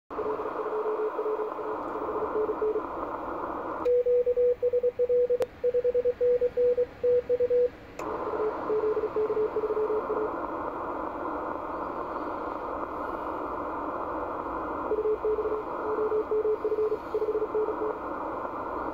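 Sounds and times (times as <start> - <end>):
radio band hiss: 0.1 - 3.9, 8.0 - 18.9.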